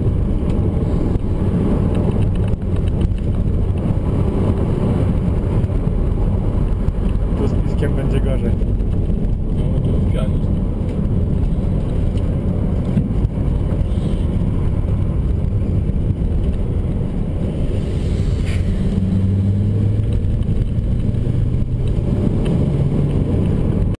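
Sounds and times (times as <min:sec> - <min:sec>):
car engine hum: 0:00.0 - 0:24.0
road rumble: 0:00.0 - 0:24.0.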